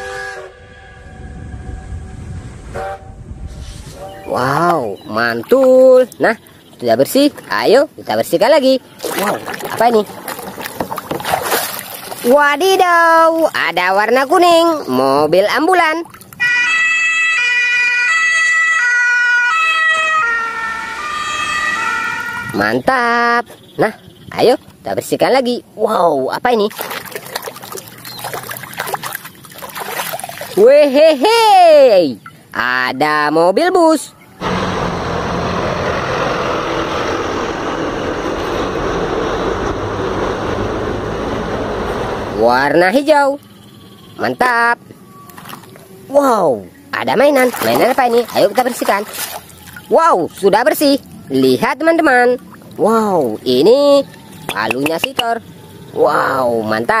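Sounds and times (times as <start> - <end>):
road noise: 0.9 - 57.0
two-tone ambulance siren: 16.4 - 22.7
bus driving past: 34.2 - 42.7.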